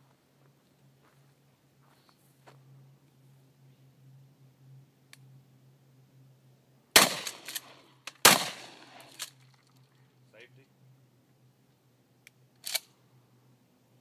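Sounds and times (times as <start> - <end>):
shotgun shots echoing: 7.0 - 9.2.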